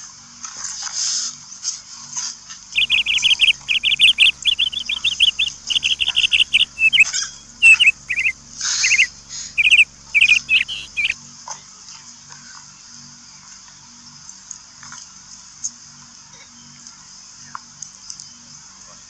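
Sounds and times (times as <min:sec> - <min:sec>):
high sharp chirping calls: 0:02.8 - 0:11.2
steady high hiss: 0:02.8 - 0:11.2.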